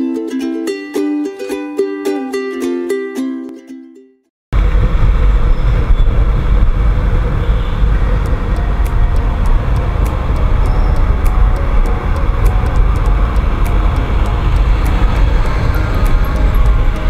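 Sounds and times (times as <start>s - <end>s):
road noise: 4.6s - 17.0s
wind buffeting microphone: 4.6s - 17.0s
scooter engine running: 7.4s - 17.0s.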